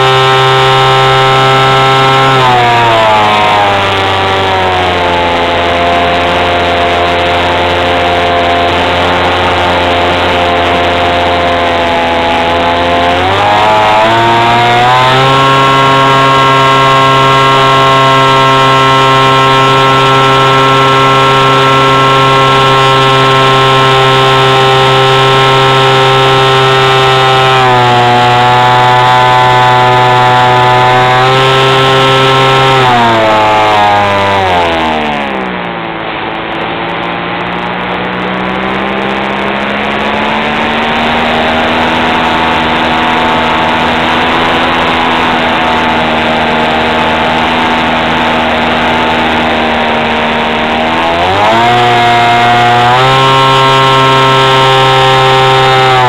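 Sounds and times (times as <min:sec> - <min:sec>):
model aircraft motor buzzing: 0:00.0 - 0:56.0.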